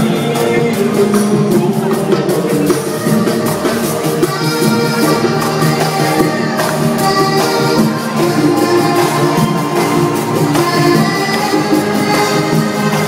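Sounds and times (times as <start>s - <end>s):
guitars: 0.0s - 13.0s
percussion beat: 0.0s - 13.0s.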